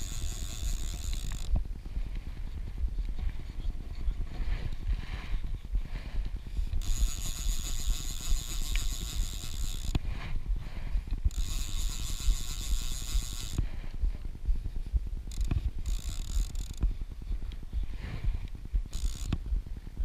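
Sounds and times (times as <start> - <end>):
fly reel ratchet clicking: 0.0 - 1.6, 6.6 - 10.1, 11.2 - 13.7, 15.3 - 17.0, 18.8 - 19.5.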